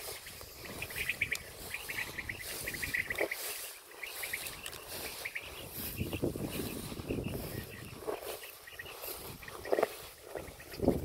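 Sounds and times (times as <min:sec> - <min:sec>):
high chirping clicks: 0:00.3 - 0:05.4.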